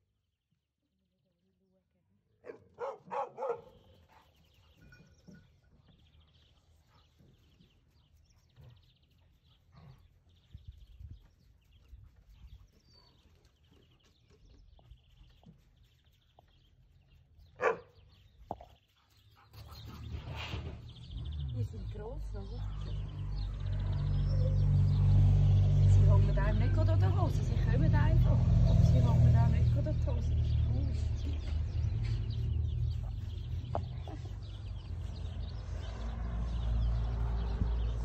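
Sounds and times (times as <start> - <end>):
faint birdsong trills: 2.4 - 38.0
puppies yipping: 17.6 - 18.0.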